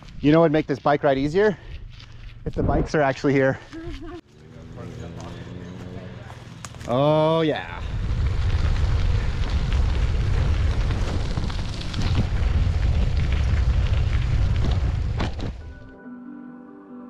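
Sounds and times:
wind buffeting microphone: 7.6 - 15.6
soft ambient music: 15.7 - 17.0.

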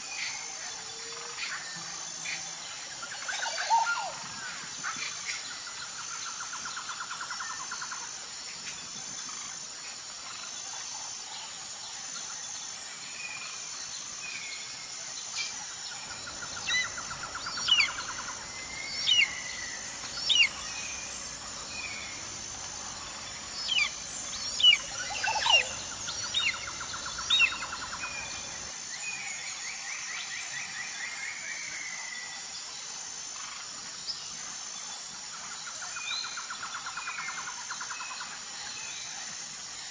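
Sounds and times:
low rattling bird trill: 15.8 - 28.7
steady high bird trill: 15.9 - 28.7.

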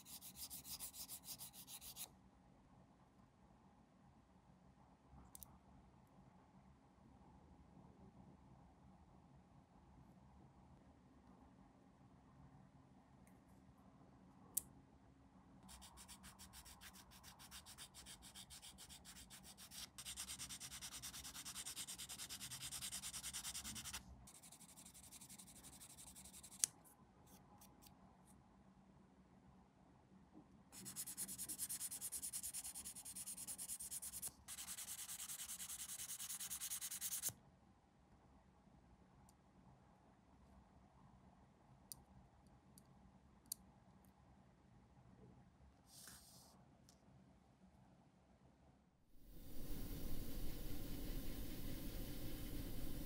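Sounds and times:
sanding plastic by hand: 15.7 - 25.9, 30.8 - 37.3.

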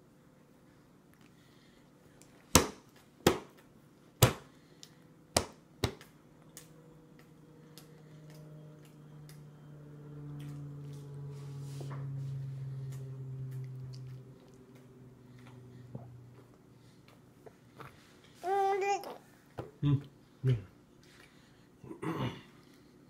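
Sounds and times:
low steady hum: 0.0 - 23.0
hand slapping plastic tray: 2.5 - 3.6, 4.2 - 4.5, 5.3 - 6.1.

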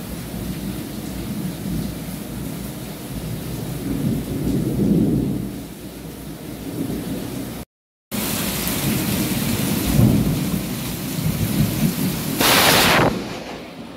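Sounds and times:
rain falling on a pond: 0.0 - 12.4
rolling thunder: 3.8 - 5.5, 11.2 - 13.9
loud burst of hiss: 12.4 - 13.9.

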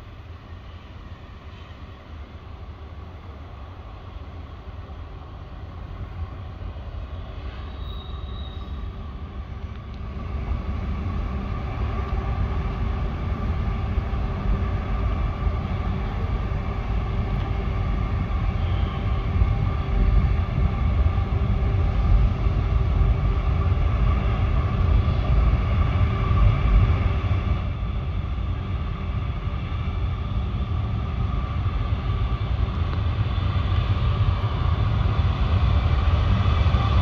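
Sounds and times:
diesel locomotive rumbling: 0.0 - 37.0.

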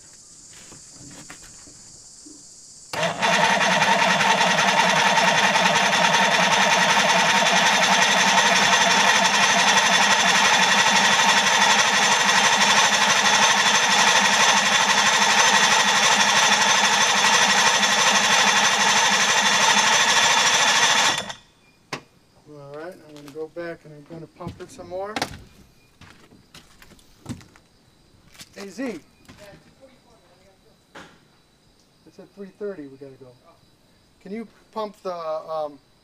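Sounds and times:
electric starter cranking outboard engine: 2.9 - 21.4.

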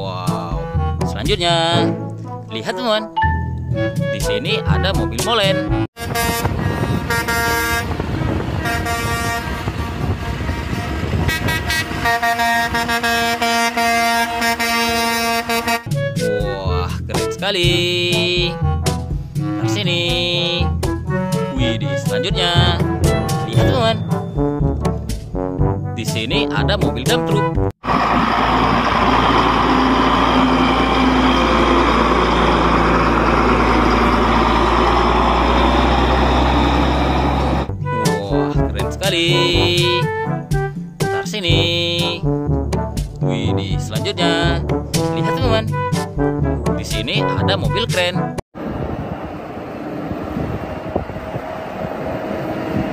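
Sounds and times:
diesel engine rumble: 3.4 - 25.4, 27.8 - 41.3, 48.6 - 52.9
truck air horns honking: 5.9 - 16.0, 27.8 - 38.2
diesel truck engine idling: 27.8 - 37.8.

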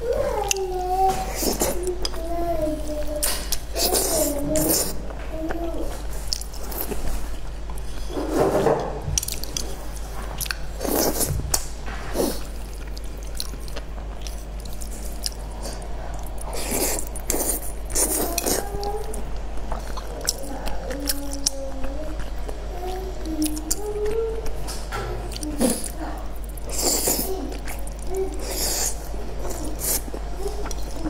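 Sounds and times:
wet chewing and slurping: 9.2 - 22.6, 25.3 - 31.0.

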